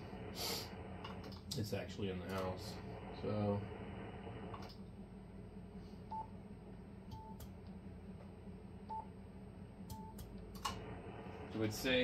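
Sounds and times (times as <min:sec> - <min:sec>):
low steady hum: 0:00.0 - 0:12.0
click: 0:04.5 - 0:04.8, 0:09.9 - 0:10.8.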